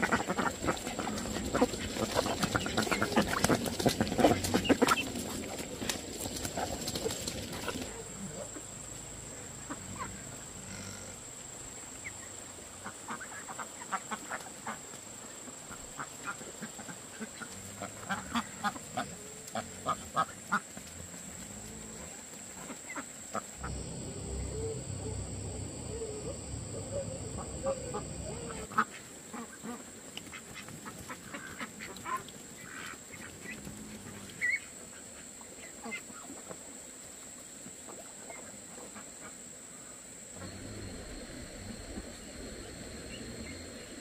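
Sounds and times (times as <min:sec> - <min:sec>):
low rumbling: 0:23.6 - 0:28.7, 0:40.4 - 0:44.0.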